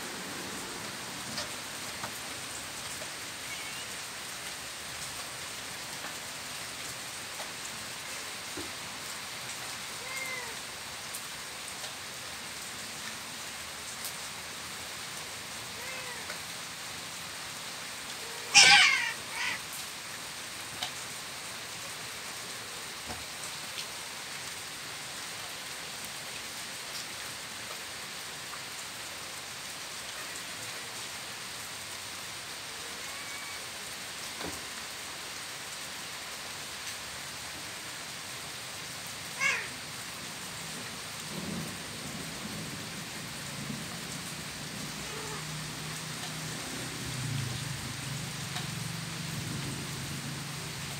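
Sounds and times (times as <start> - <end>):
rain falling on porch: 0.0 - 50.9
cat yowling: 10.0 - 10.6, 15.7 - 16.3, 18.2 - 19.6, 32.7 - 33.7, 39.4 - 39.8, 45.0 - 45.5.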